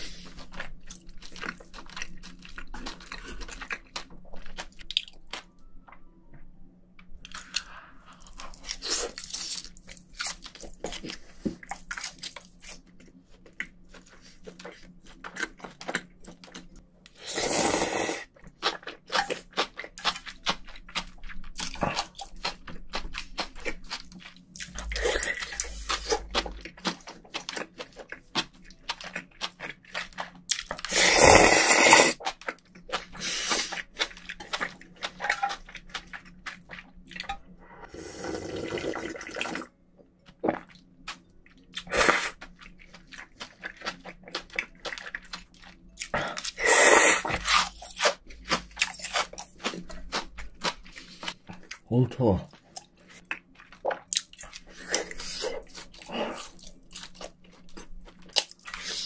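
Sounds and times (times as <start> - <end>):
wet chewing: 0.1 - 6.0, 18.2 - 37.5, 40.2 - 51.9, 52.5 - 59.0
slurping noodles: 17.2 - 18.3, 30.8 - 32.2, 37.8 - 39.7, 46.2 - 48.2.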